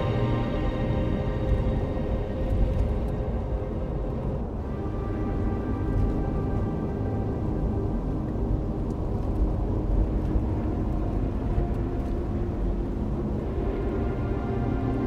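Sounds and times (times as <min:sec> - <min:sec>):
car road and engine rumble: 0:00.0 - 0:15.0
soft music: 0:00.0 - 0:15.0.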